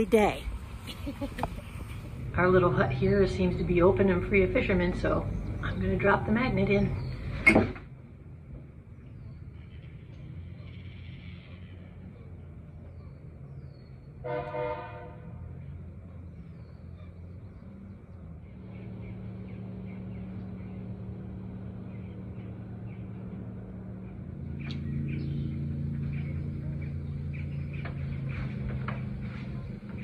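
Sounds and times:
low engine hum: 0:00.0 - 0:14.2, 0:15.1 - 0:30.0
horn blast: 0:14.2 - 0:15.2.

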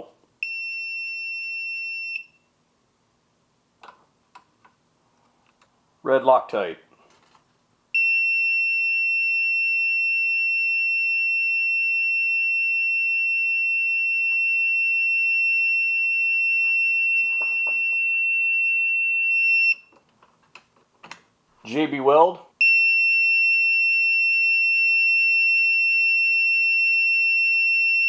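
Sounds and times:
long high-pitched beep: 0:00.4 - 0:02.4, 0:08.0 - 0:19.8.

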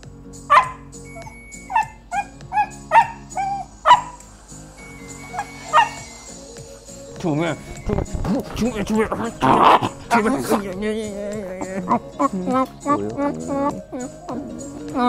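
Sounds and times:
background music with steady chords: 0:00.0 - 0:15.0
dog yipping and barking: 0:00.5 - 0:04.2, 0:04.8 - 0:06.3.

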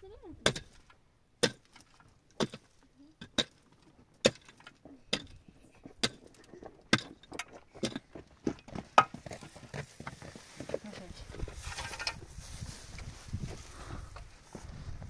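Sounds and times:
hand tool striking: 0:00.4 - 0:03.6, 0:04.2 - 0:05.4, 0:06.0 - 0:08.1.

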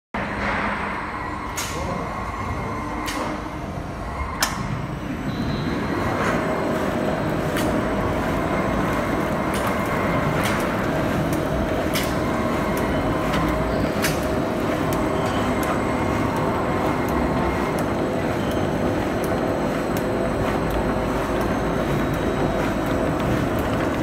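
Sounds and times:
stretch wrapper machine hum: 0:05.6 - 0:24.0.

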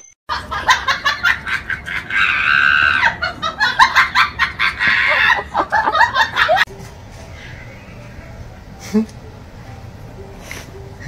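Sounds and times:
person shrieking with laughter: 0:01.5 - 0:06.2.

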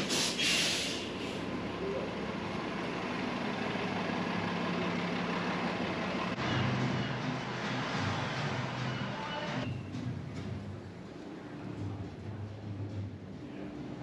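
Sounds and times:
air hiss: 0:00.0 - 0:01.4
bus engine idling: 0:00.0 - 0:14.0.

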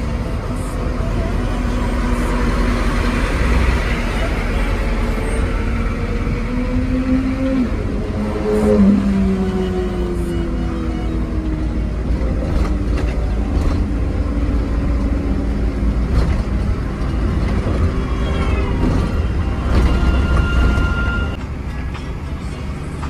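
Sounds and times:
road noise: 0:00.0 - 0:23.0
truck engine rumble: 0:00.0 - 0:23.0
steady high tone: 0:17.8 - 0:22.4.

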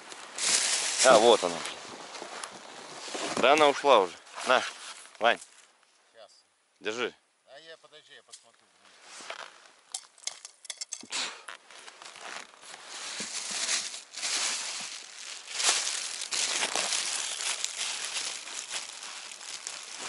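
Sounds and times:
snow and ice crunching: 0:00.0 - 0:05.1, 0:11.6 - 0:20.0.

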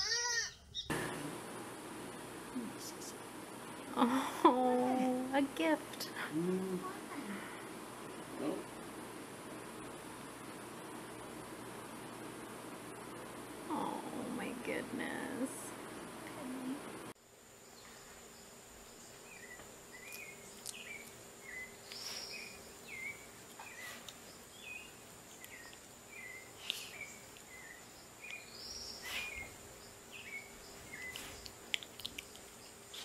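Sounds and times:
squeaky animal call: 0:00.0 - 0:00.8.

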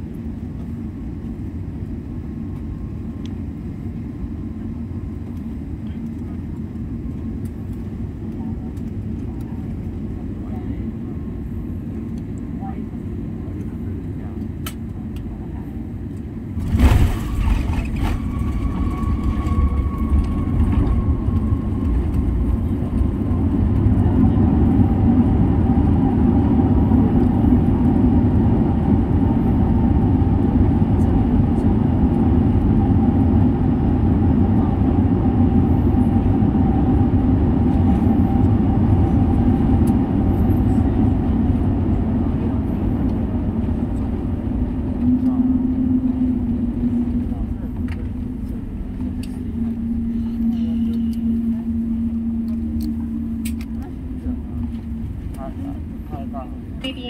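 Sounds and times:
jet engine roar: 0:00.0 - 0:57.0
wheels rumbling on runway: 0:00.0 - 0:57.0
faint whine falling in pitch: 0:16.6 - 0:25.2, 0:43.0 - 0:57.0.

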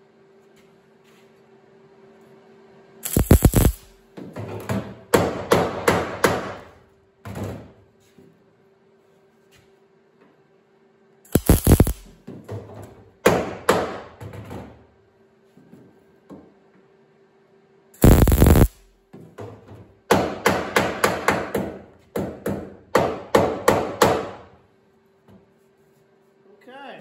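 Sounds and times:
welder crackling: 0:03.0 - 0:04.0, 0:11.3 - 0:12.1, 0:18.0 - 0:18.9.

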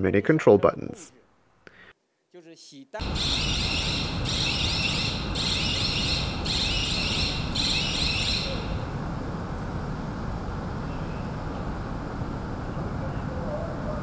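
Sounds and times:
warbling warning alarm: 0:03.0 - 0:08.9
train low rumble: 0:08.5 - 0:14.0.

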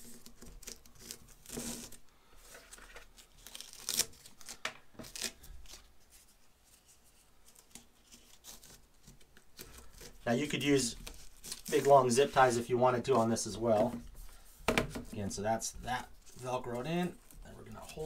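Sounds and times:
velcro strap ripping: 0:03.1 - 0:05.9, 0:09.6 - 0:12.0.

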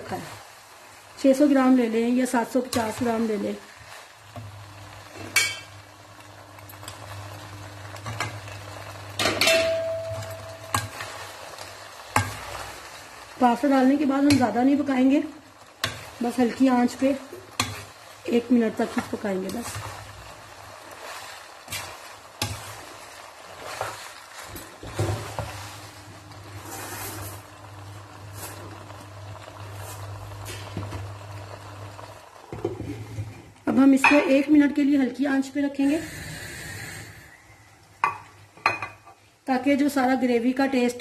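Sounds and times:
spatula scraping a wok: 0:17.0 - 0:27.5.

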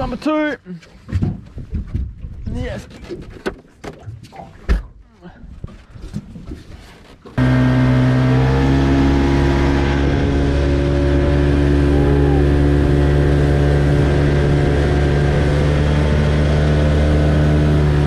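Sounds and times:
outboard motor running: 0:07.4 - 0:18.0.

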